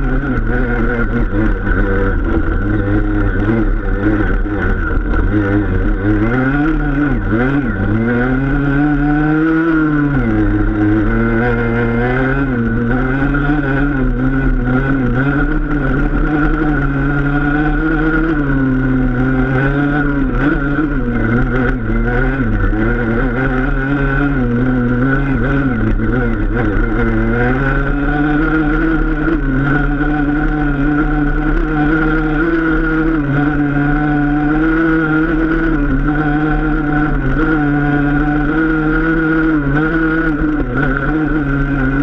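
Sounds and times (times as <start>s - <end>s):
dirt bike engine running: 0.0s - 42.0s.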